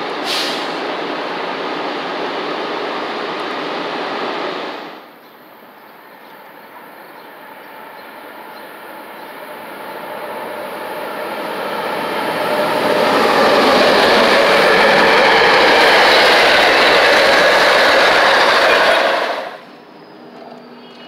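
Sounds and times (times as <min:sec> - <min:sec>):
train wheels clattering on rails: 0:11.4 - 0:19.6.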